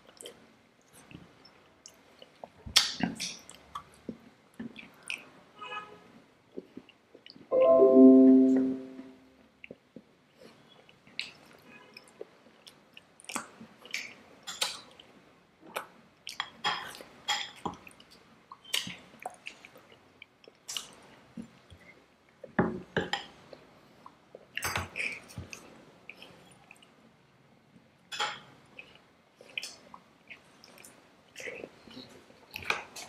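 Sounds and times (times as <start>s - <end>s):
chewing and wet mouth smacks: 11.0s - 15.1s, 15.7s - 22.0s, 28.8s - 33.0s.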